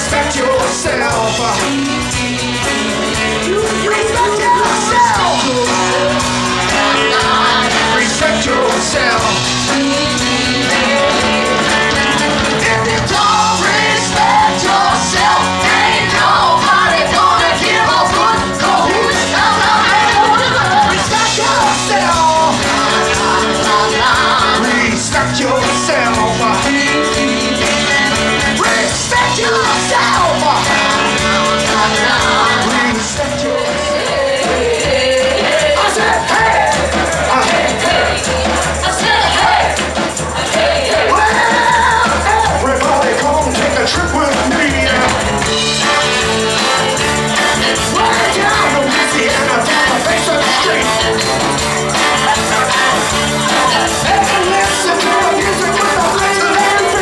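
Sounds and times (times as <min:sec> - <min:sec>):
male lead vocal: 0:00.0 - 0:46.8, 0:47.4 - 0:57.0
drums: 0:00.0 - 0:57.0
electric guitar: 0:00.0 - 0:57.0
female backing singers: 0:04.6 - 0:11.8, 0:12.5 - 0:25.1, 0:28.6 - 0:42.8, 0:47.6 - 0:51.0.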